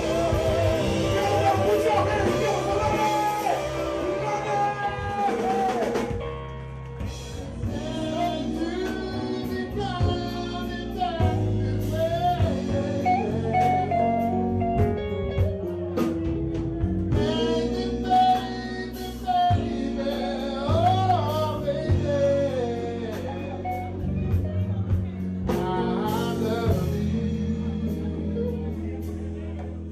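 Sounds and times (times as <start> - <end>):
man singing into microphone: 0.0 - 6.3, 7.4 - 14.8, 17.1 - 29.6
live band playing: 0.0 - 29.9.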